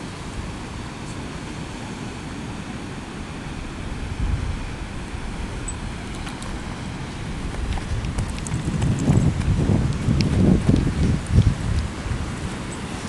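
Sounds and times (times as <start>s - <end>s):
surf washing: 0.0s - 13.0s
wind buffeting microphone: 3.3s - 13.0s.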